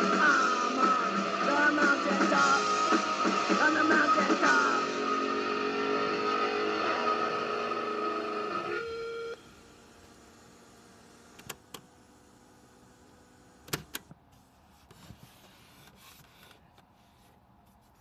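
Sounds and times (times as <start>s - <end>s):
rock song from boombox: 0.0s - 9.4s
faint handling noise: 14.0s - 18.0s.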